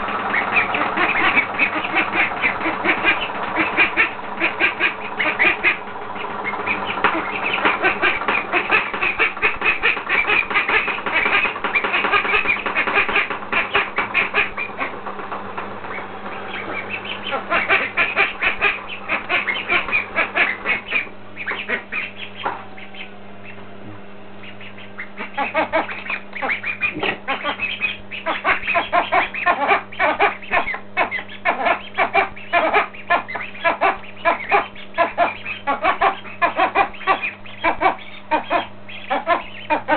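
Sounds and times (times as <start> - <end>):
ducks quacking: 0.0 - 39.9.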